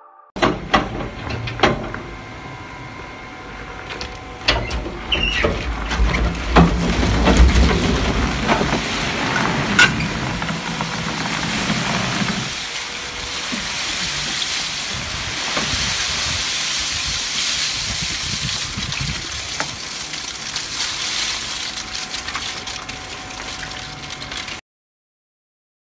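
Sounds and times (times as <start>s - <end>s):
forklift engine hum: 0.4s - 24.5s
plastic flakes pouring: 6.9s - 24.6s.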